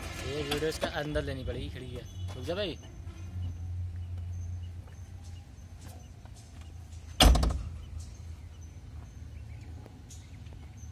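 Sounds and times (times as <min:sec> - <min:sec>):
vehicle cab door slamming: 0:07.2 - 0:07.8.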